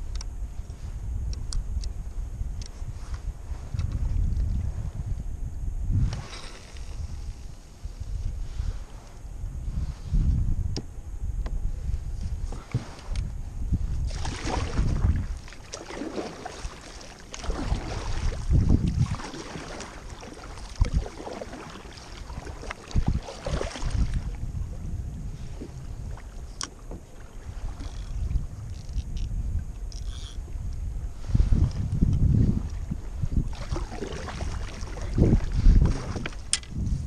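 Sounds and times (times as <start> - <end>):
wind buffeting microphone: 0.0 - 37.0
water slapping against kayak hull: 13.9 - 24.6, 31.5 - 36.9.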